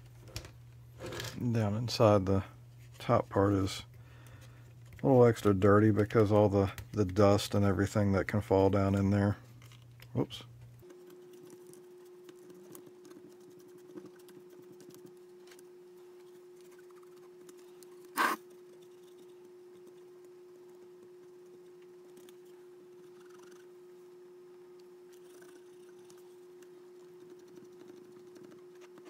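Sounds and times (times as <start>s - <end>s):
steady low hum: 0.0s - 29.0s
cotton swab scratching mechanism: 16.6s - 23.7s.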